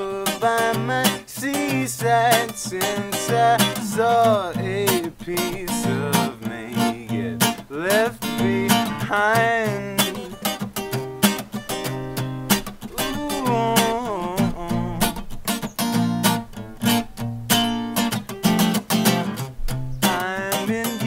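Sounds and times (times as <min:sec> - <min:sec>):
wordless singing: 0:00.0 - 0:10.6, 0:12.8 - 0:15.4, 0:20.0 - 0:21.0
acoustic guitar strumming: 0:00.0 - 0:21.0.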